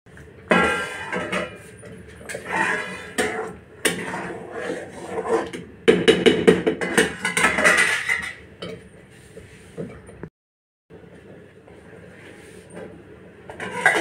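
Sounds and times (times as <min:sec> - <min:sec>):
metal ladle scraping pan: 0:00.4 - 0:05.7, 0:06.8 - 0:08.4, 0:13.6 - 0:14.0
metal lid clattering: 0:06.8 - 0:08.4, 0:13.6 - 0:14.0.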